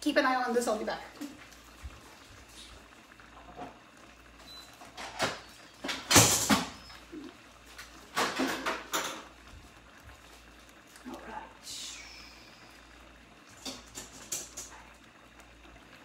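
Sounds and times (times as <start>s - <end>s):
kitchen utensils clattering: 5.0s - 6.8s, 8.0s - 9.2s.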